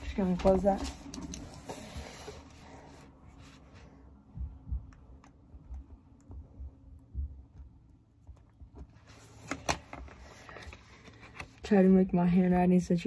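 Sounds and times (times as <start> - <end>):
soft low thumps: 4.0 - 9.0.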